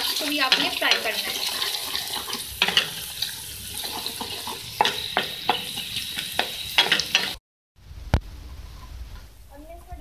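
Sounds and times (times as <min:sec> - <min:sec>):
wooden spatula stirring: 0:00.0 - 0:03.1
onions sizzling in oil: 0:00.0 - 0:07.4.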